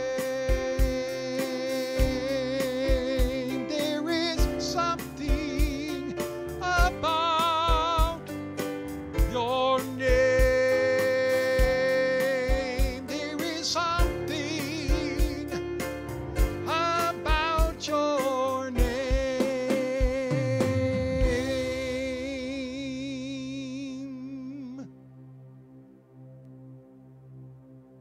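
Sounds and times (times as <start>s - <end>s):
man singing with vibrato: 0.0s - 8.3s, 9.3s - 15.8s, 16.6s - 24.9s
keyboard playing: 0.0s - 28.0s
steady beat: 0.2s - 22.9s.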